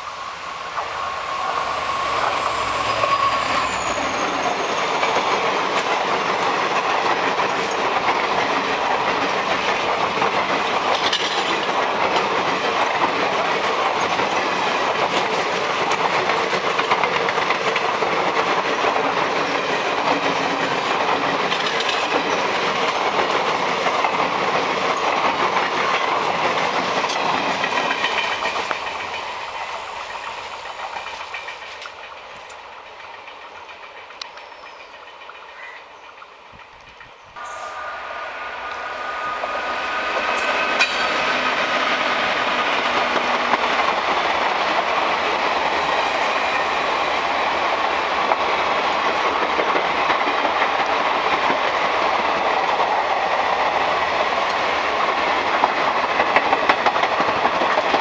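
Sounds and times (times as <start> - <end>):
diesel locomotive passing: 0.0 - 58.0
coaches clattering over rail joints: 2.2 - 29.3, 40.1 - 45.2.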